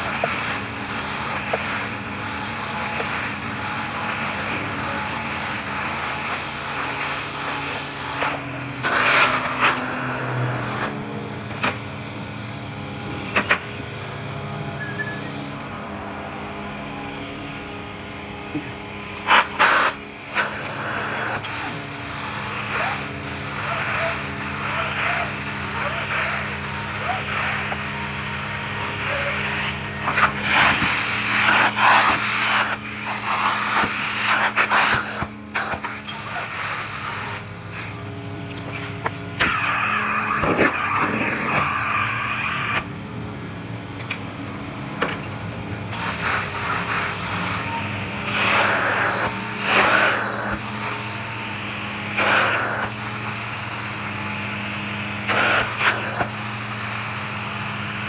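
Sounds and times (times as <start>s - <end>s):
cleaning machine humming: 0.0s - 58.0s
suction rushing over carpet: 19.2s - 28.4s, 29.0s - 42.8s, 45.9s - 47.6s, 48.2s - 58.0s.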